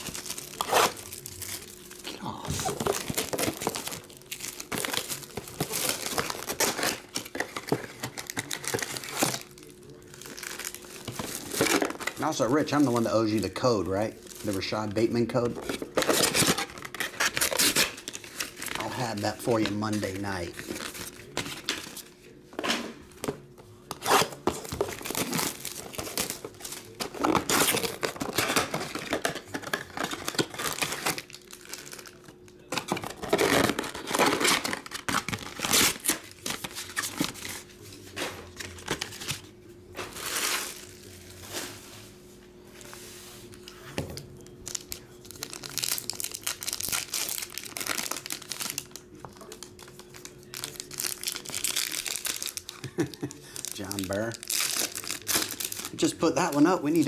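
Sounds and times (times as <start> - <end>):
foil packs crinkling: 0.0 - 22.4, 23.2 - 42.0, 44.4 - 57.0
cardboard box tearing and rustling: 15.6 - 18.8.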